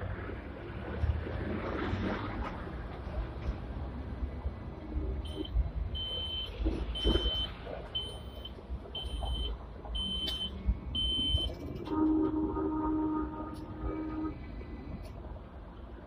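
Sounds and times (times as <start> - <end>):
tram rumbling along track: 0.0 - 16.0
high electronic beeps: 5.3 - 11.5.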